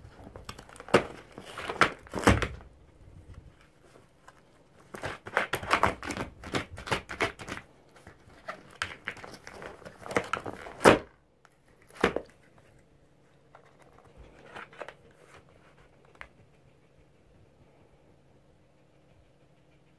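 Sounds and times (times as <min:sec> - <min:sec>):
cardboard rustling: 0:00.0 - 0:02.7, 0:03.4 - 0:16.3
fox tearing cardboard: 0:00.0 - 0:02.7, 0:03.6 - 0:12.8, 0:13.5 - 0:16.2.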